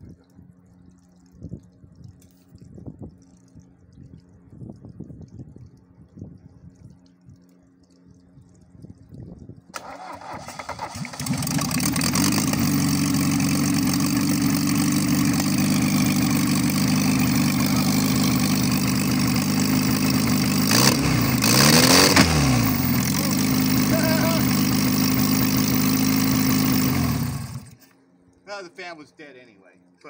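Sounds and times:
diesel engine cranking and running: 9.8 - 27.8.

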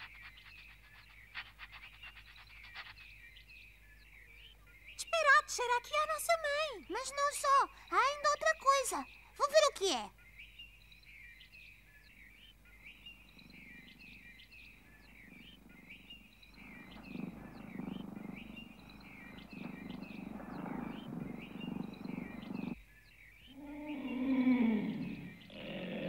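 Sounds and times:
birds chirping: 0.0 - 26.0
low rough animal growl: 15.0 - 22.8, 23.6 - 26.0.

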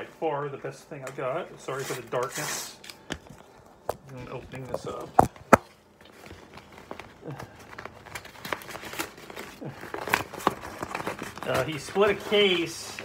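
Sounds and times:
packaging rustling and crinkling: 3.2 - 13.0.

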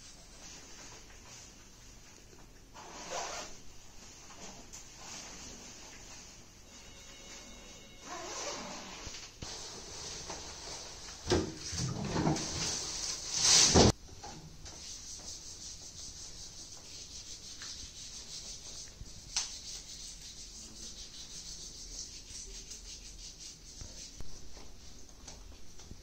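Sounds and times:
low steady hiss: 0.0 - 26.0
waste bin clatter: 9.8 - 14.0.

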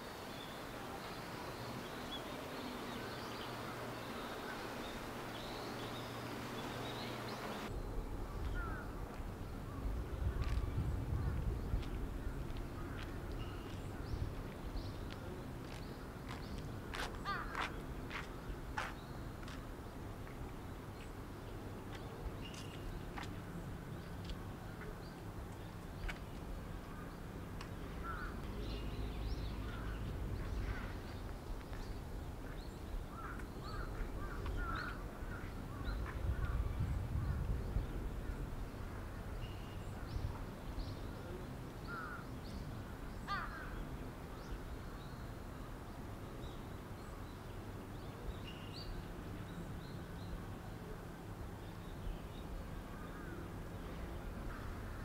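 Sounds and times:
bird calls: 0.3 - 7.7
crow cawing: 43.3 - 43.7.

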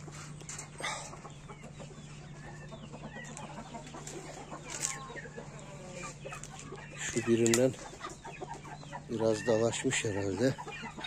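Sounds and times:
chickens clucking and chirping: 0.0 - 11.0
footsteps on gravel: 3.8 - 5.2.

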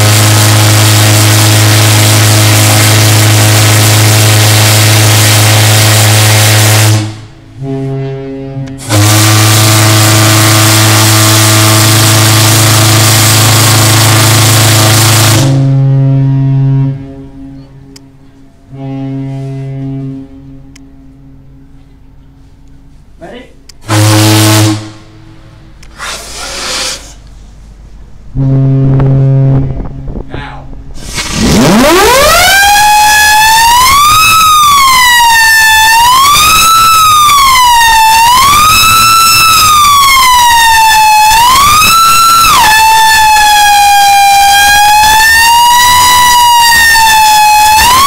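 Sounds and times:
steam fog horn blast: 0.0 - 22.6, 23.8 - 27.3, 28.3 - 30.2, 31.0 - 48.0
steam hissing: 25.9 - 27.2.

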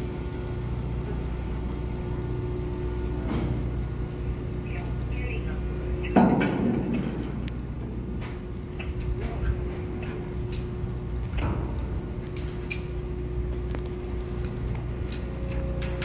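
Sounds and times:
ferry engines droning: 0.0 - 16.0
metallic clanks and clicks: 8.2 - 16.0.

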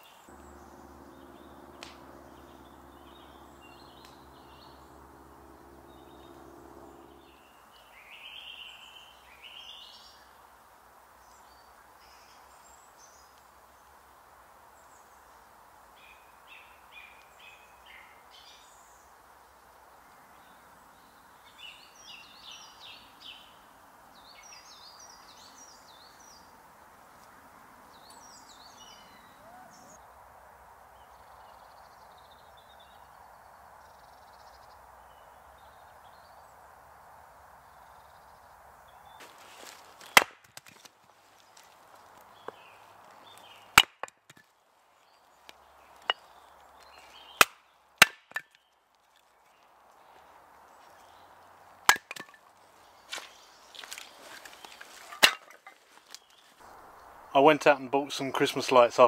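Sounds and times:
birds calling and singing: 0.0 - 10.3, 19.9 - 30.0, 41.4 - 59.0
quick chirping notes: 0.3 - 7.5
steady background hush: 0.3 - 7.8.

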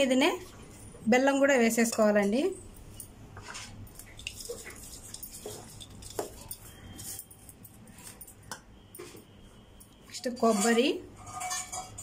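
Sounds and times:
spoon scraping metal bowl: 3.4 - 9.3, 10.2 - 12.0.

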